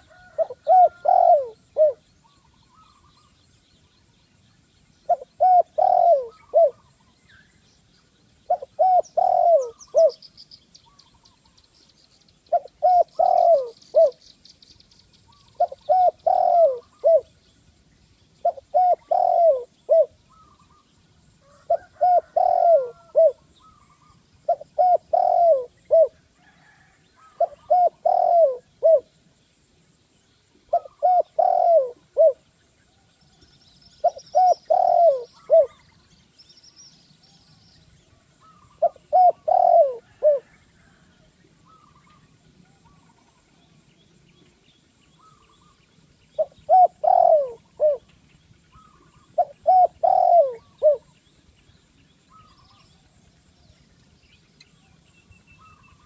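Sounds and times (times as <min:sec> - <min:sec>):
dove cooing: 0:00.0 - 0:03.1, 0:05.1 - 0:06.9, 0:08.5 - 0:10.2, 0:12.5 - 0:14.2, 0:15.5 - 0:17.3, 0:18.4 - 0:20.8, 0:21.4 - 0:29.1, 0:30.7 - 0:32.4, 0:34.0 - 0:35.8, 0:38.4 - 0:43.4, 0:46.4 - 0:48.1, 0:48.7 - 0:51.1
small birds chirping: 0:00.0 - 0:56.0.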